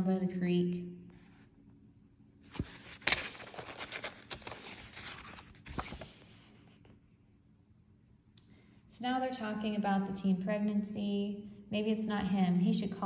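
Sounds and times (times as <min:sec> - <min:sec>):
paper pages rustling: 0:02.4 - 0:07.0
page snapping: 0:02.5 - 0:06.1.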